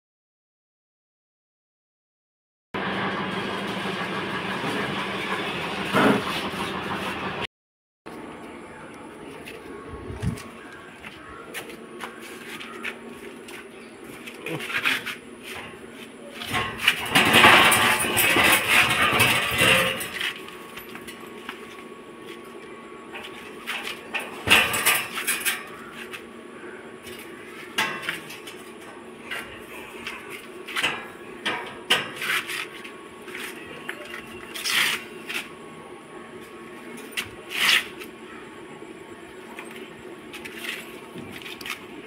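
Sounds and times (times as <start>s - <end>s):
metal cage scraping on tiles: 16.4s - 20.4s, 23.8s - 25.9s
metal clanks and knocks: 16.4s - 21.2s, 23.2s - 25.8s, 27.7s - 29.6s, 30.7s - 32.4s.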